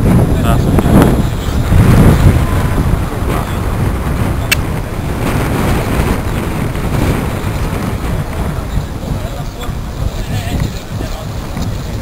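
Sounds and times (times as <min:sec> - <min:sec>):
wind buffeting microphone: 0:00.0 - 0:12.0
sharp click: 0:04.5 - 0:04.7
faint crowd: 0:06.2 - 0:12.0.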